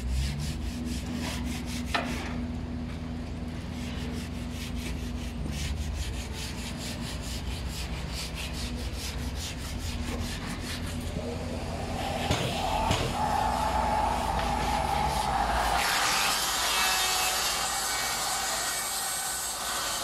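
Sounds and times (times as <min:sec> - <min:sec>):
low machine hum: 0:00.0 - 0:18.6
rhythmic rasping strokes: 0:03.8 - 0:20.0
rising whine: 0:10.8 - 0:19.0.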